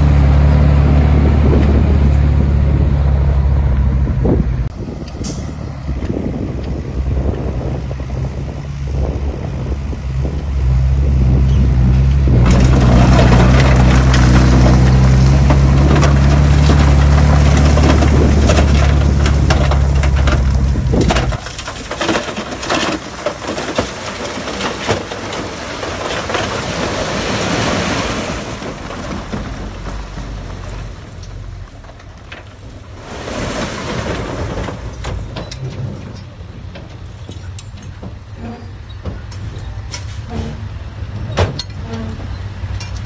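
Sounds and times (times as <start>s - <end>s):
soil crunching and clattering: 10.3s - 43.0s
heavy diesel engine working: 33.9s - 43.0s.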